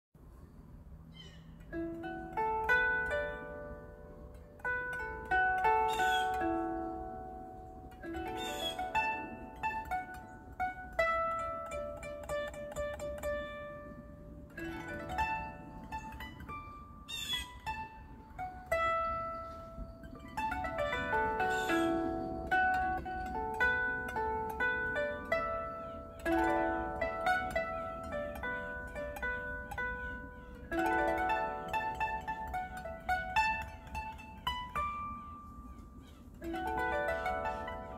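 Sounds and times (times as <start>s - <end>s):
plucked koto melody: 1.2s - 37.9s.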